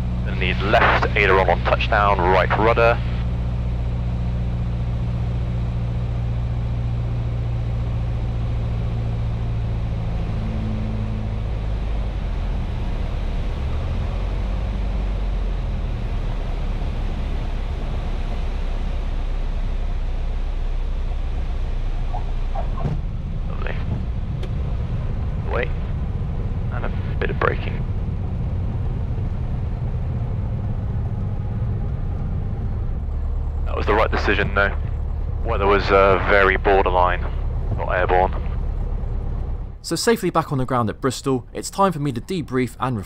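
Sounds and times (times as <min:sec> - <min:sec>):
light aircraft engine and propeller: 0:00.0 - 0:43.0.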